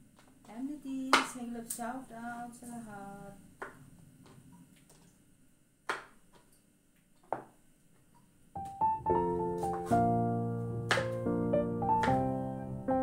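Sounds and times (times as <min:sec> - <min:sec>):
piano music: 0:08.6 - 0:13.0.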